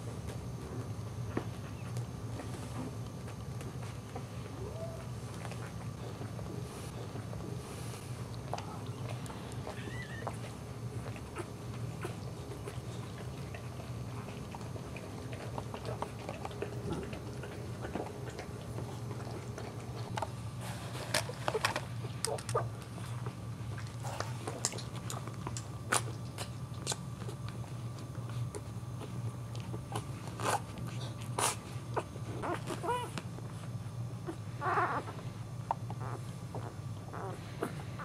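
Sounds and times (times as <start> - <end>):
dog licking puppies: 1.7 - 20.2, 20.9 - 38.0
puppies suckling: 3.6 - 38.0.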